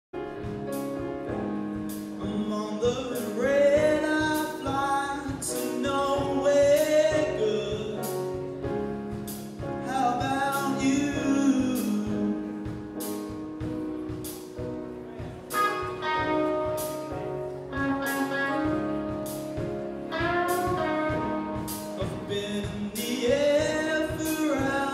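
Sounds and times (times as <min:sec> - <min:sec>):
piano: 0:00.1 - 0:24.9
drums and cymbals: 0:00.3 - 0:24.9
man singing: 0:02.1 - 0:08.4, 0:09.8 - 0:12.8, 0:21.1 - 0:24.9
electric guitar: 0:10.5 - 0:24.9.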